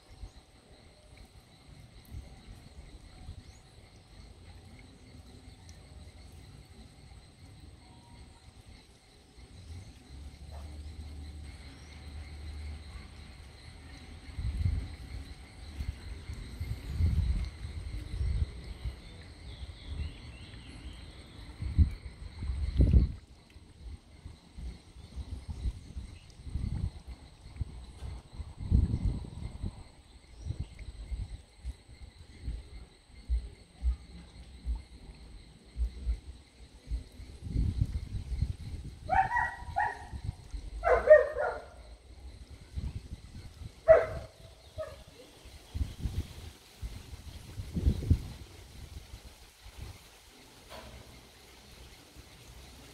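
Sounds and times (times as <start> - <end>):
faint high insect trill: 0.0 - 52.9
wind buffeting microphone: 14.2 - 50.1
dog barking: 39.1 - 40.1, 40.8 - 41.7, 43.9 - 45.0.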